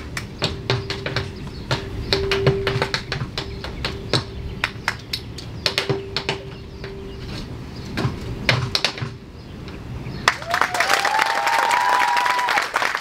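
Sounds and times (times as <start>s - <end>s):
percussive taps and thumps: 0.0s - 7.0s, 8.0s - 9.2s.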